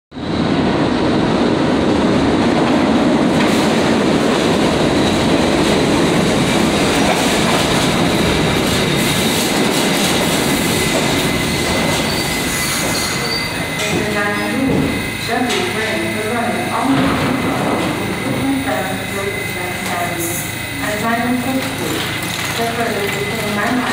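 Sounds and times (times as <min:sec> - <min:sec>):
subway train wheels rumbling: 0:00.1 - 0:23.9
high brake squeal: 0:12.0 - 0:13.7.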